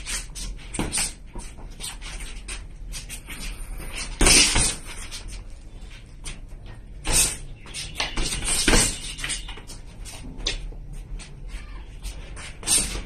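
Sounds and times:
boxing gloves slapping and thudding: 0:00.0 - 0:03.1, 0:03.8 - 0:05.4, 0:07.0 - 0:10.7, 0:12.5 - 0:13.0
scuffing footwork: 0:00.0 - 0:13.0.

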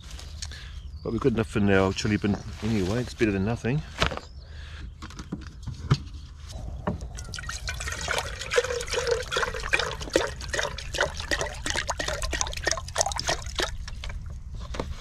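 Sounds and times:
water pouring into metal pot: 0:07.0 - 0:14.2.

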